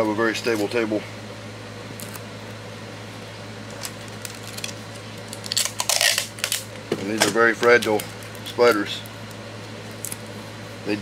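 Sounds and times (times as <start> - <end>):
low room hum: 0.0 - 11.0
hands rustling plastic: 3.7 - 6.6.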